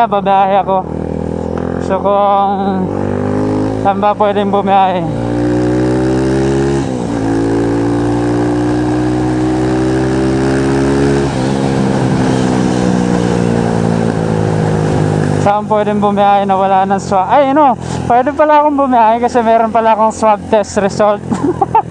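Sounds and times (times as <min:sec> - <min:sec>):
motorcycle engine accelerating: 0:00.0 - 0:21.9.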